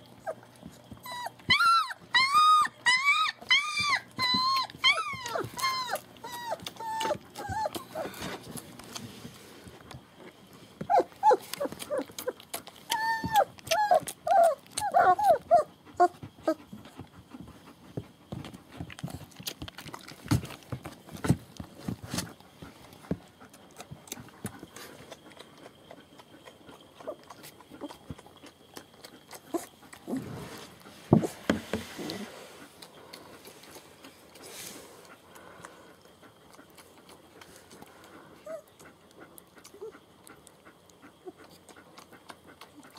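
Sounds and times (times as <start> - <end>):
puppies whimpering and squealing: 0.1 - 8.8, 10.8 - 17.0, 29.3 - 35.0, 38.1 - 40.0
rustle: 29.4 - 36.0.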